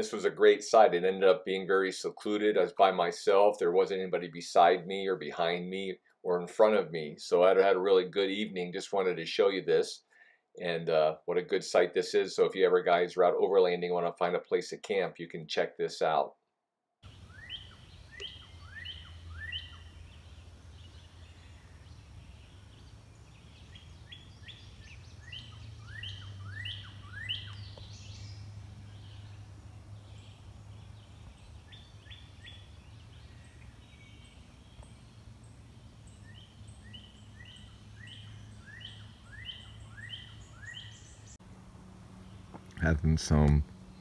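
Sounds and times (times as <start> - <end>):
low outdoor hum: 17.0 - 44.0
songbird whistling: 17.1 - 29.3, 36.1 - 41.3.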